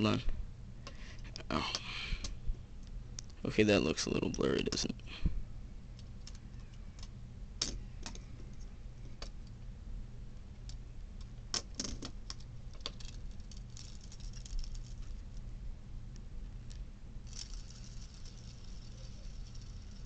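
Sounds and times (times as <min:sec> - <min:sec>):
faint steady hum: 0:00.0 - 0:20.0
fidget spinner plastic clicks: 0:06.0 - 0:08.6, 0:10.6 - 0:15.4, 0:16.7 - 0:20.0.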